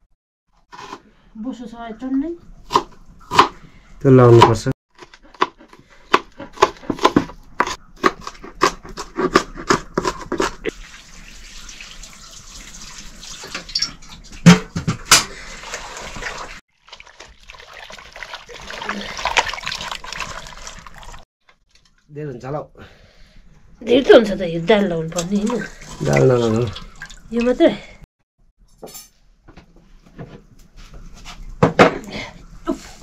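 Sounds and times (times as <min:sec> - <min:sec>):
knife chopping food on board: 0:05.4 - 0:10.5.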